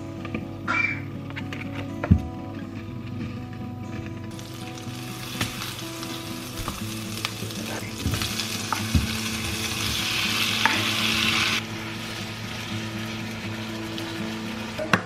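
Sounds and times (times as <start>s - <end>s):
food sizzling in frying pan: 4.3s - 15.0s.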